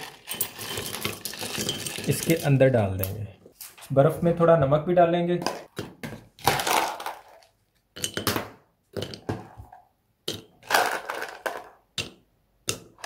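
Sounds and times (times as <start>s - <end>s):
ice crunching and clinking in mug: 0.0s - 2.6s.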